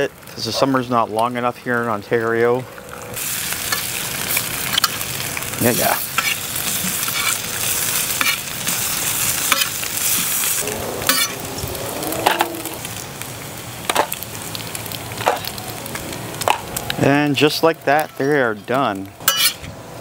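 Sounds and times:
bacon sizzling on a griddle: 2.8s - 20.0s
metal spatula scraping on steel: 6.2s - 7.4s, 11.0s - 11.4s, 19.2s - 19.7s.

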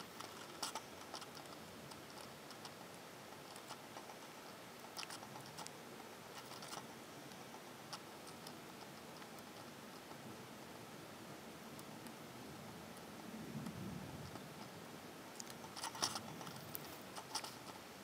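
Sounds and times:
light ticks and clicks: 0.0s - 10.7s
faint background hiss: 0.0s - 18.0s.

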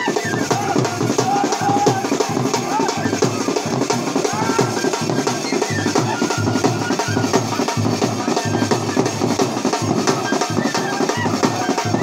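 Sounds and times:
large drum beaten fast: 0.0s - 12.0s.

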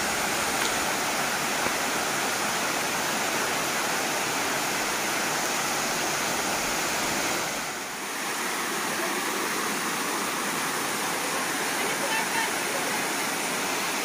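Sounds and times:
waterfall rushing: 0.0s - 14.0s.

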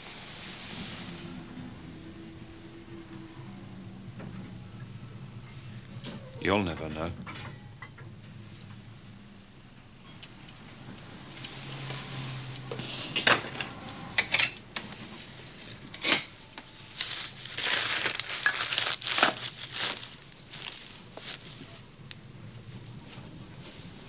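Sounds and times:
fabric rustling and crinkling: 16.7s - 24.0s.

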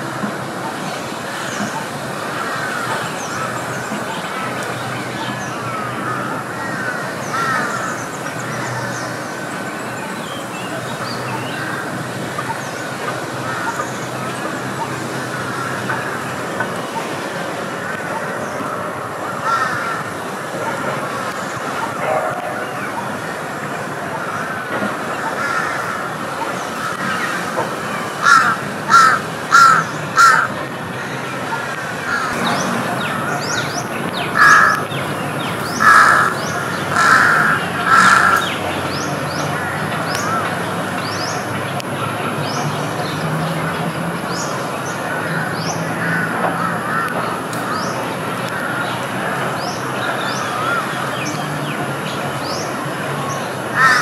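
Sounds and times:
steady background noise: 0.0s - 54.0s
birds chirping and calling: 0.2s - 54.0s
crow cawing: 2.4s - 3.5s, 5.7s - 8.0s, 19.3s - 20.2s, 24.2s - 26.2s, 28.2s - 33.6s, 34.4s - 34.8s, 35.8s - 38.5s, 45.1s - 47.8s, 53.7s - 54.0s.

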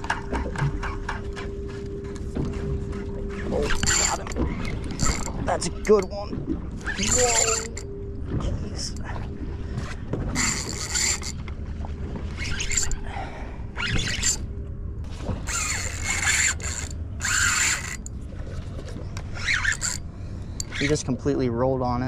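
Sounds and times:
fishing reel whirring: 2.9s - 6.2s, 6.8s - 8.0s, 9.8s - 11.4s, 12.3s - 13.1s, 13.7s - 14.5s, 15.4s - 18.2s, 19.3s - 21.2s.

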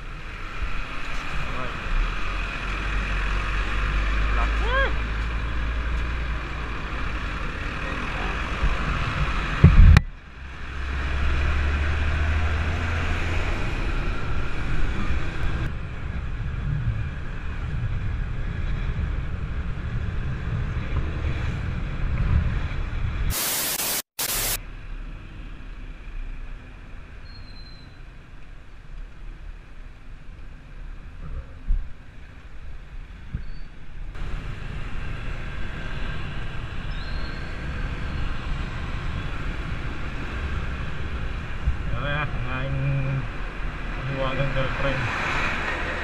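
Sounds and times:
passing vehicles: 0.0s - 23.3s, 24.5s - 46.0s
wind rushing over microphone: 8.4s - 23.4s, 34.1s - 46.0s
burst of hiss: 23.3s - 24.6s.

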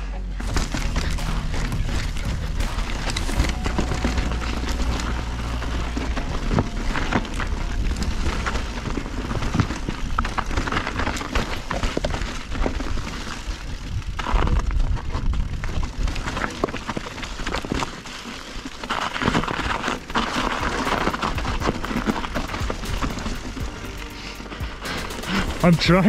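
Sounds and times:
bike rattling over bumps: 0.3s - 24.2s
tyres crunching over stones: 0.3s - 24.6s
wind rumbling on microphone: 0.4s - 18.1s.

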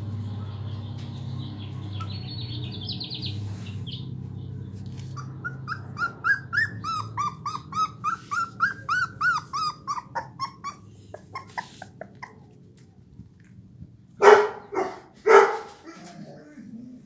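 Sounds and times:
puppy whining: 4.9s - 12.7s.

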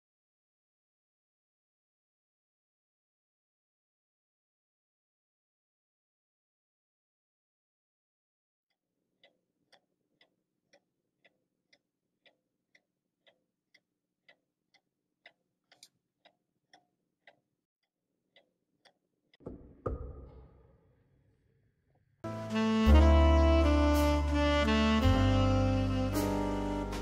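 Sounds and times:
watch ticking: 8.7s - 20.2s.

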